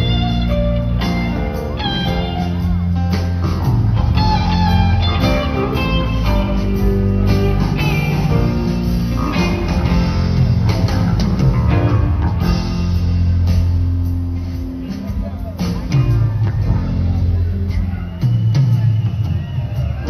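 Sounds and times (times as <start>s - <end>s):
electric guitar melody: 0.0s - 17.9s
live rock band playing: 0.0s - 20.0s.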